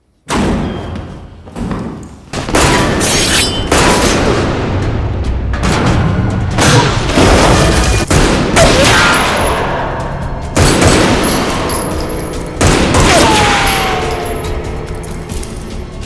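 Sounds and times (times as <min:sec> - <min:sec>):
film music score: 0:00.3 - 0:16.0
gunshots booming with echoes: 0:05.6 - 0:14.0.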